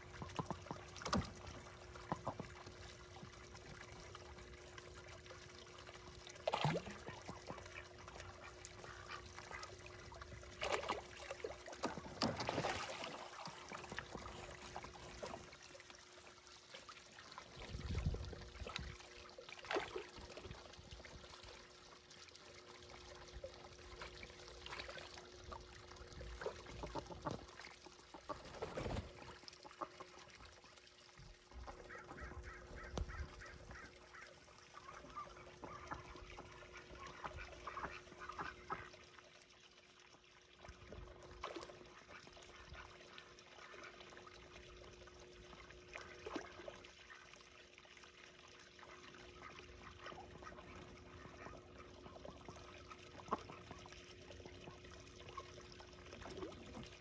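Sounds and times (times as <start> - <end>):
ducks splashing: 0.0 - 39.3, 40.5 - 57.0
water trickling and splashing: 0.0 - 57.0
duck calls: 31.8 - 36.0.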